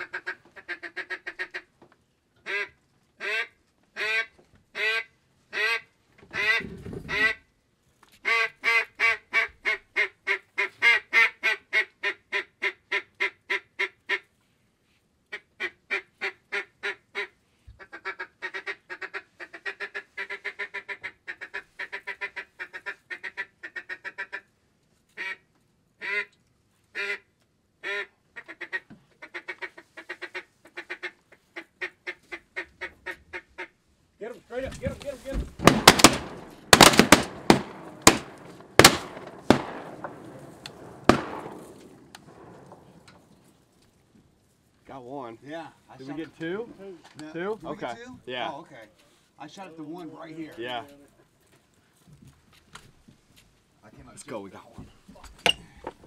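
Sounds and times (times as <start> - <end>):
duck call quacks: 0.0 - 1.7, 2.4 - 7.4, 8.2 - 14.3, 15.3 - 24.5, 25.1 - 26.3, 26.9 - 33.8.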